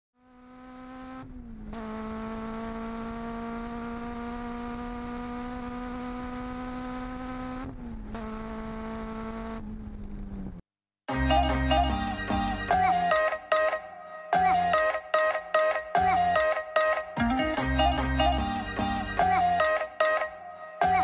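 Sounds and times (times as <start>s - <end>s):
car engine buzzing tone: 0.2s - 12.7s.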